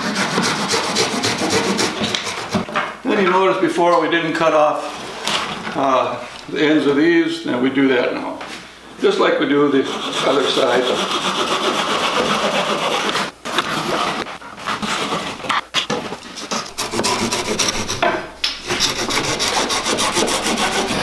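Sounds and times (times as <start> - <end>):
hand saw cutting branches: 0.0 - 2.6, 9.9 - 21.0.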